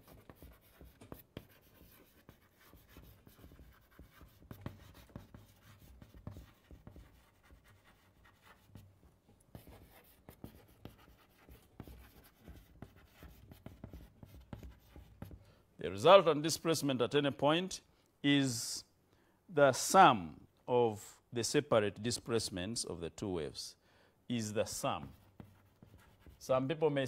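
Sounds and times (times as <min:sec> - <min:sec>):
pen scratching paper: 0:00.0 - 0:08.9, 0:09.5 - 0:15.4, 0:25.0 - 0:26.4.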